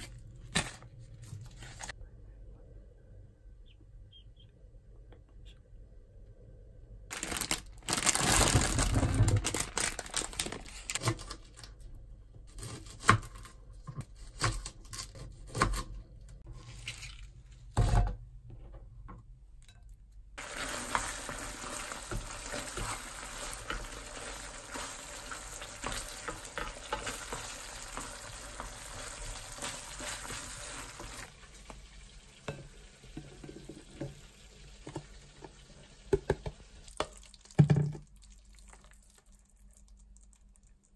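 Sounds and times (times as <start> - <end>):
sauce sizzling in frying pan: 20.4 - 37.3.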